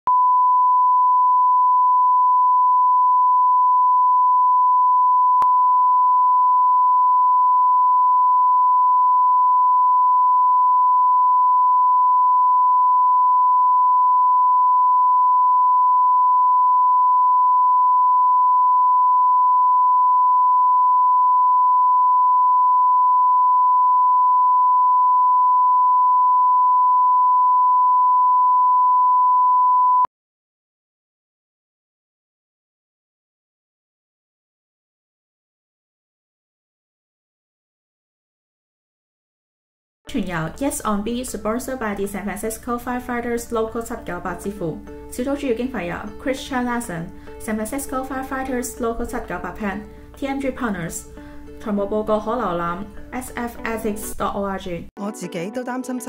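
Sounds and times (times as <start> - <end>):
sine test tone: 0.1 - 30.1.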